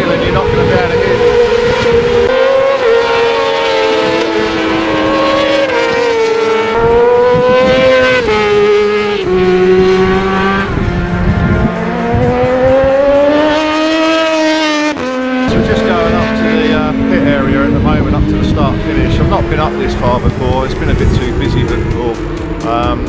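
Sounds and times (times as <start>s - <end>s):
racing motorcycle revving: 0.0s - 23.0s.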